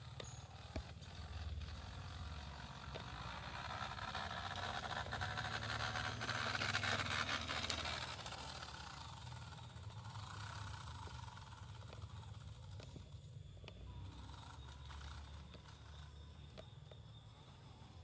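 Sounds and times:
toy truck electric motor: 0:00.0 - 0:18.0.

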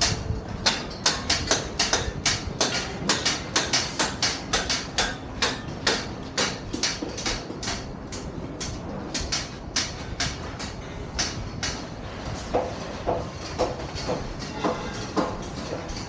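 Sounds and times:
sharp ringing knocks: 0:12.5 - 0:16.0.

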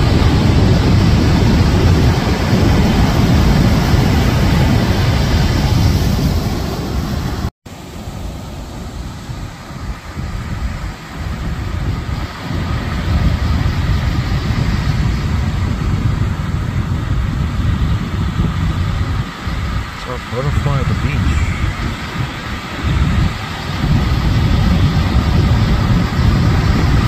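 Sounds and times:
breaking surf: 0:00.0 - 0:27.0
wind buffeting microphone: 0:00.0 - 0:27.0.

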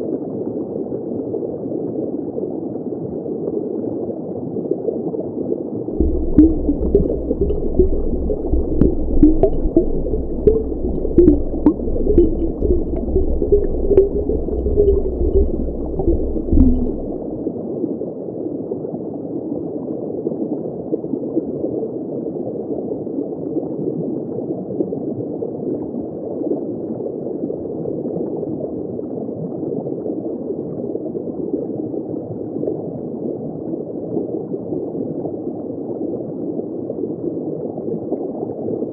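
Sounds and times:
low rumble: 0:06.0 - 0:17.4
muffled underwater thrusters: 0:06.0 - 0:17.4
muffled water hiss: 0:06.0 - 0:17.4.

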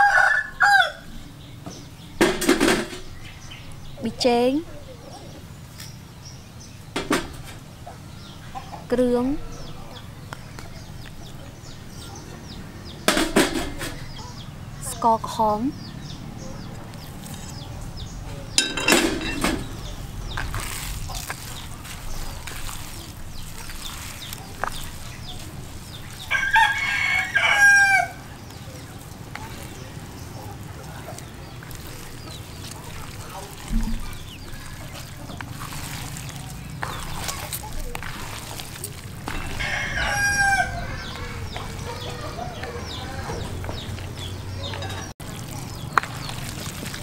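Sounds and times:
rooster crowing: 0:00.0 - 0:01.1, 0:26.3 - 0:28.3, 0:39.3 - 0:43.8
hands squishing raw meat: 0:16.2 - 0:47.0.

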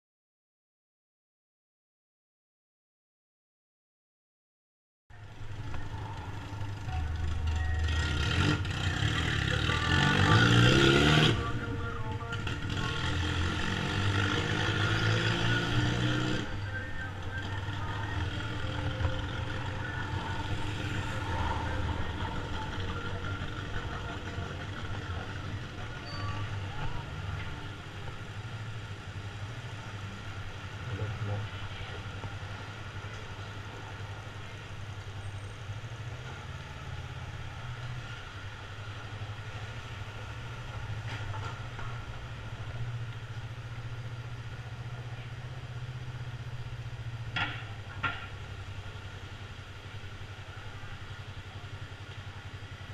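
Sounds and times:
motorcycle engine accelerating: 0:05.4 - 0:31.2.

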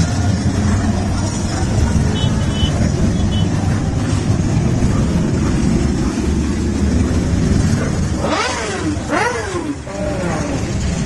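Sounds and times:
motorcycle engines droning: 0:00.0 - 0:11.0.

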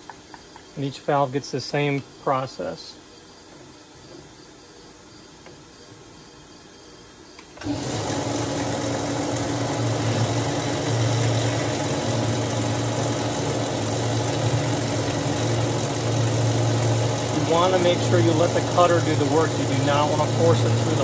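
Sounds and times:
metal lathe humming: 0:07.6 - 0:21.0.

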